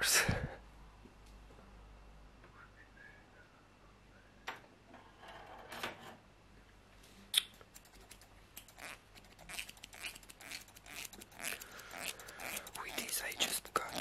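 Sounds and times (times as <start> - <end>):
plastic combs clicking and scratching: 7.6 - 14.0.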